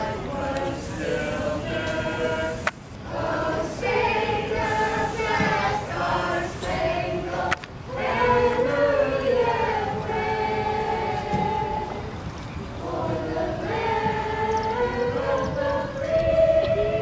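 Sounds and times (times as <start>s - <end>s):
young voices chanting a cheer: 0.0s - 12.0s.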